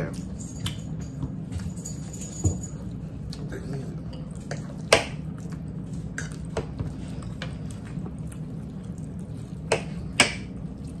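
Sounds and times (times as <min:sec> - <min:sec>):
steady low hum: 0:00.0 - 0:11.0
chewing: 0:02.8 - 0:11.0.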